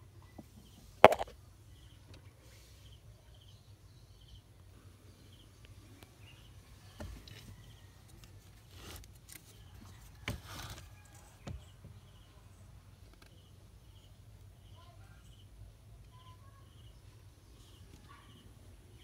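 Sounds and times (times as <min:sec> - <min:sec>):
handling clicks and knocks: 0:01.0 - 0:01.3.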